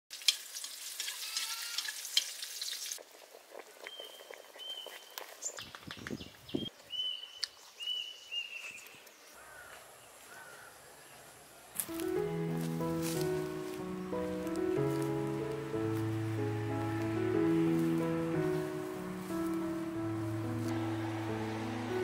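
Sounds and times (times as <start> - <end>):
food sizzling in a wok: 0.1 - 3.0.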